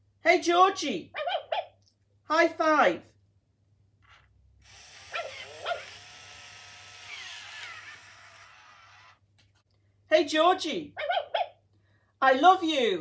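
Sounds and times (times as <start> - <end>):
recorded puppy yips and cry: 1.1 - 1.8, 5.1 - 5.9, 11.0 - 11.6.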